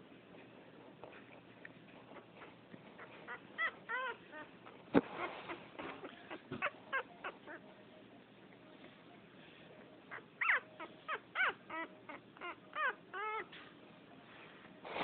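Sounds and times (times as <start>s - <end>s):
puppy whimpering: 2.0s - 7.6s, 10.1s - 13.6s.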